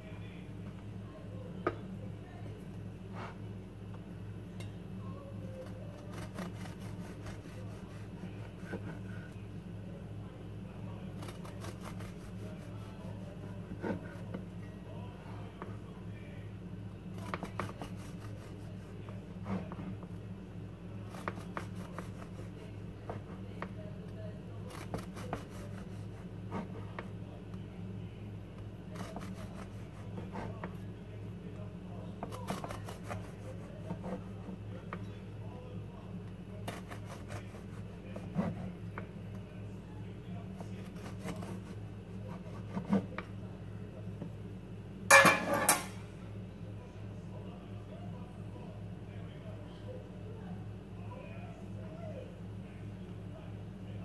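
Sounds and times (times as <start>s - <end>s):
steady low hum: 0.0s - 54.0s
knife sawing through bread crust: 5.9s - 9.3s, 11.1s - 14.3s, 17.2s - 19.9s, 21.0s - 23.4s, 24.6s - 27.0s, 28.9s - 30.7s, 32.2s - 34.6s, 36.6s - 38.8s, 40.5s - 43.2s.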